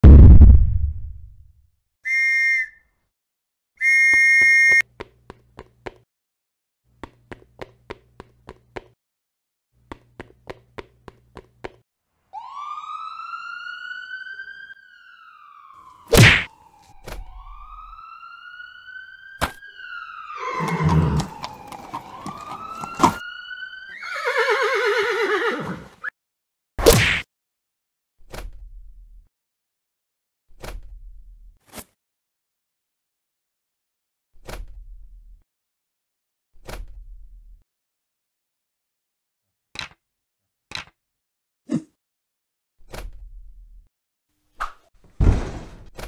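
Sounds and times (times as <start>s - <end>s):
sharp hits: 0.0s - 1.5s
police siren wailing: 12.3s - 25.2s
horse whinny: 20.4s - 23.2s, 23.9s - 26.1s
clip-clop hoofbeats: 20.8s - 23.2s.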